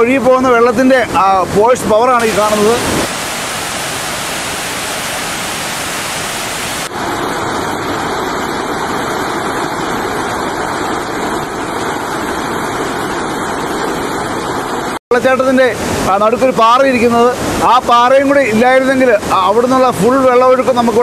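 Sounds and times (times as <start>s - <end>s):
river rapids rushing over rocks: 2.2s - 6.9s.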